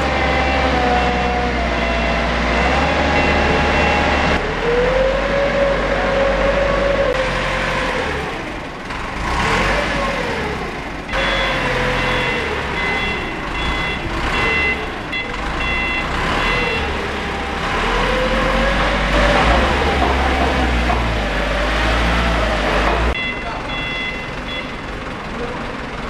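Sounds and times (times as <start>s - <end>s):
reversing alarm beeping: 0.0s - 4.4s, 11.1s - 17.0s, 23.1s - 24.8s
forklift engine revving: 0.0s - 26.0s.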